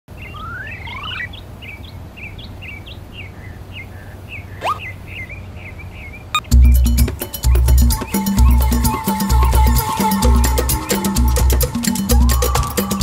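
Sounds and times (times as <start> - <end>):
birds chirping: 0.1 - 13.0
music with heavy bass beat: 6.4 - 13.0.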